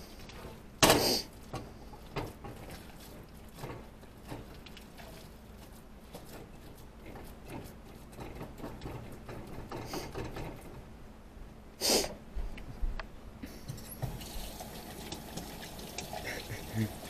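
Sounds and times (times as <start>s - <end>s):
kitchen clicks taps and scrapes: 6.1s - 10.8s.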